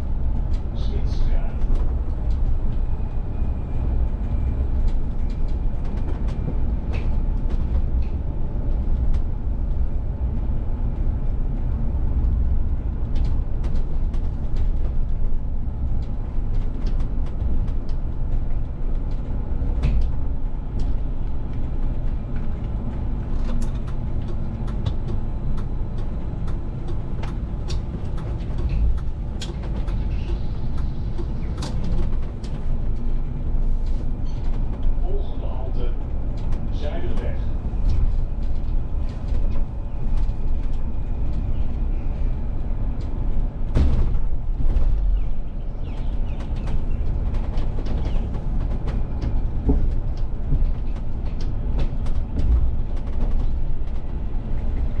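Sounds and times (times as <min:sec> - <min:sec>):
bus engine and road rumble: 0:00.0 - 0:55.0
light clicks and rattles: 0:13.1 - 0:33.1.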